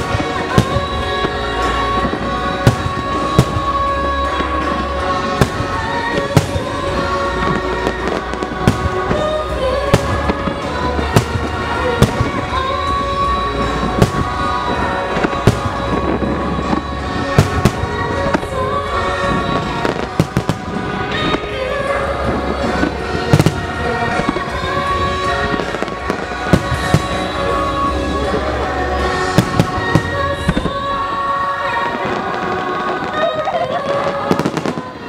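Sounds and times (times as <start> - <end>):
heavy firework booms: 0.0 - 27.9
loud music: 0.0 - 35.0.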